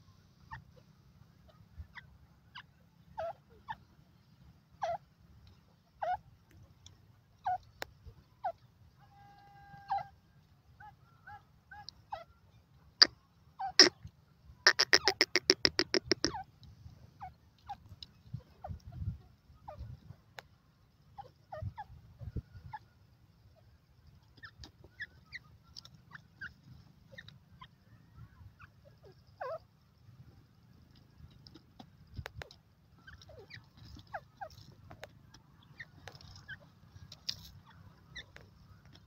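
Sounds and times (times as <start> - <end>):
bird chirps: 0.0 - 39.0.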